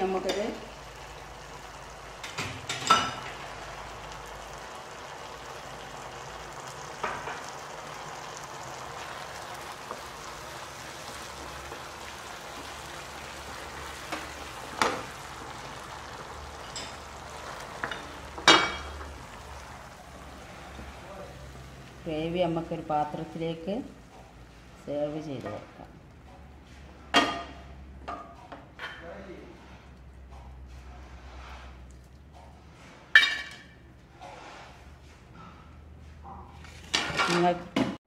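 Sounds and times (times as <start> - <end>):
gravy sizzling in a frying pan: 0.0 - 24.9.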